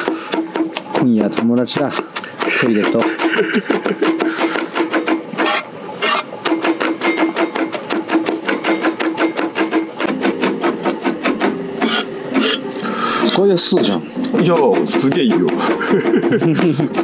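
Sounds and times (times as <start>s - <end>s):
cleaver chopping on wooden board: 0.0s - 12.6s.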